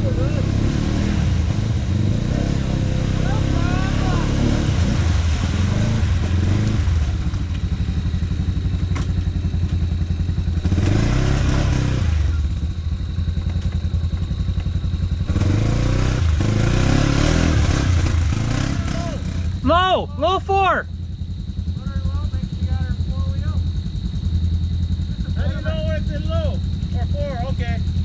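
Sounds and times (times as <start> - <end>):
quad engine revving in mud: 0.0 - 19.8.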